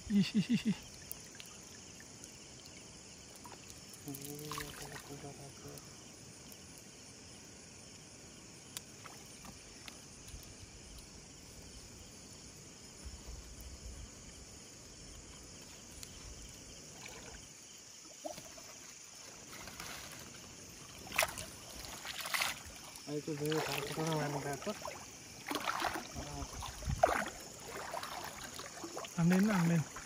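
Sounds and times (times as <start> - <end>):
steady outdoor hiss: 0.0 - 30.0
net splashing into water: 3.4 - 5.2, 20.8 - 30.0.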